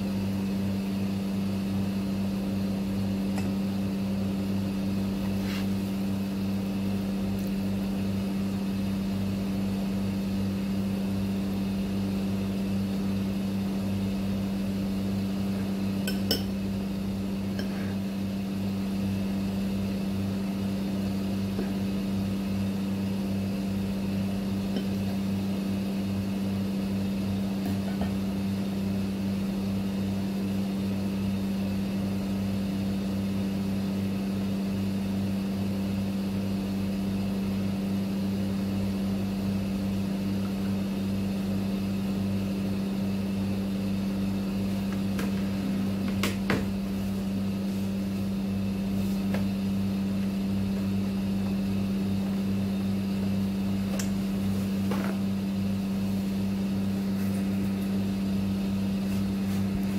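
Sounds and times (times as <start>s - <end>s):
appliance electrical hum: 0.0s - 59.9s.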